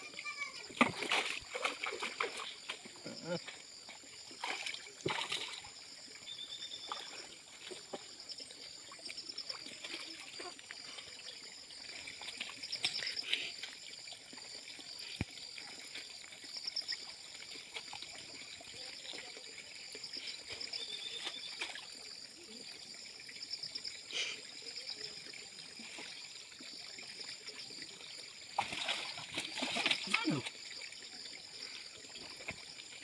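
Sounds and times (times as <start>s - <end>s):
person wading through water: 0.0s - 16.5s, 28.5s - 33.0s
water pouring off net: 28.6s - 30.5s.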